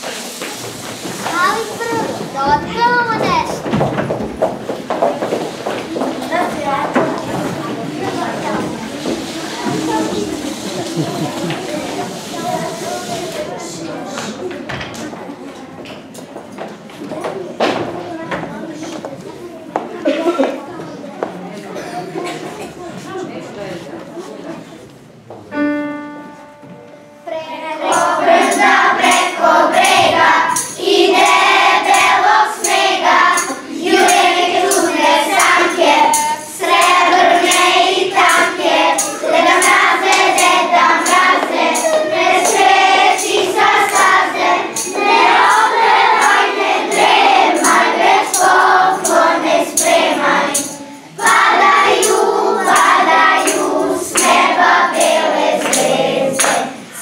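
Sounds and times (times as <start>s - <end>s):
choir singing: 27.2s - 57.0s
music with steady beat: 27.8s - 56.7s.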